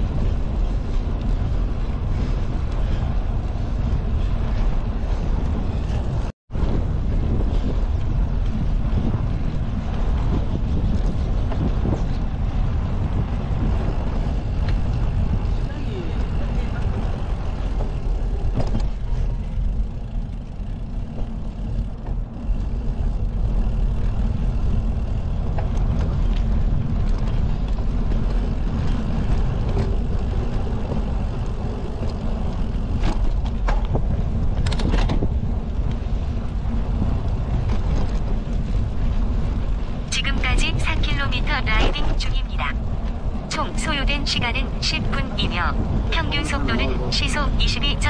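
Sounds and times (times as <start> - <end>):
bicycle tyres rolling on path: 0.0 - 48.0
wind buffeting microphone: 0.0 - 48.0.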